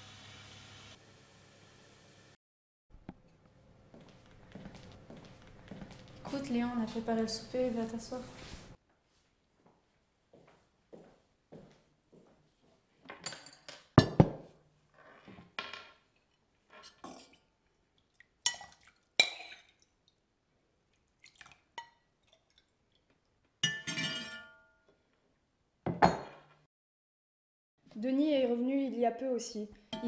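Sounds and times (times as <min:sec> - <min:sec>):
metal ladle clinking: 0:23.6 - 0:24.8.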